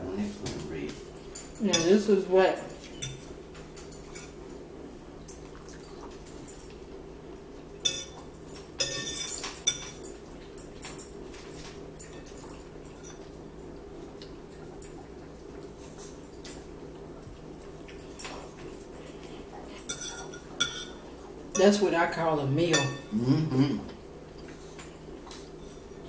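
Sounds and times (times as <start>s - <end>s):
steady low hum: 0.0s - 26.0s
forks clinking on plates: 1.2s - 4.4s, 7.8s - 13.3s, 19.8s - 21.0s, 22.7s - 23.1s.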